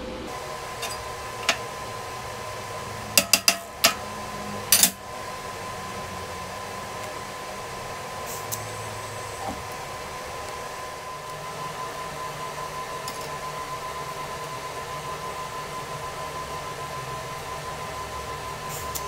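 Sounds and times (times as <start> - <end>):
machine fan hum and hiss: 0.0 - 19.0.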